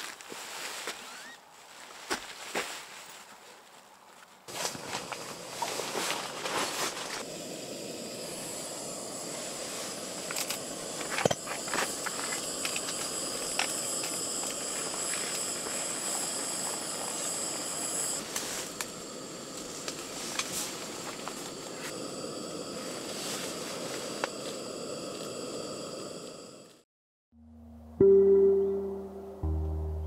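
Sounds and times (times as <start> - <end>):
gas stove burner hissing: 4.5 - 26.8.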